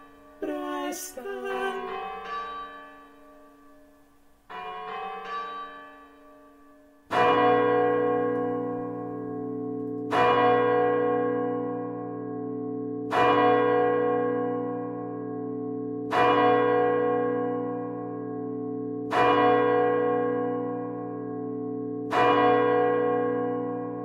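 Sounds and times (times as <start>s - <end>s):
large church bell tolling: 0.0s - 24.0s.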